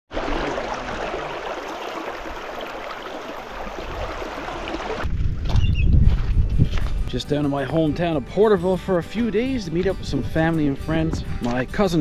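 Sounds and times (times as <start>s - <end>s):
flowing river water: 0.1s - 5.1s.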